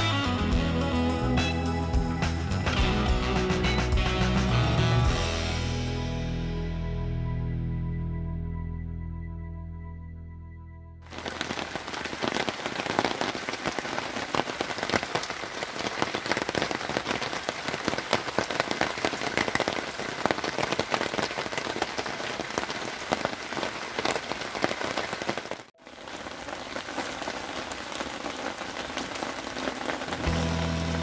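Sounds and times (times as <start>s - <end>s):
rain pattering on a car: 11.1s - 31.0s.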